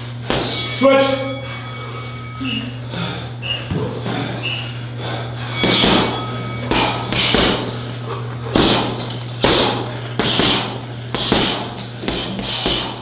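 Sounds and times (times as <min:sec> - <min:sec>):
hits on striking bag: 0:05.6 - 0:07.7, 0:08.5 - 0:13.0.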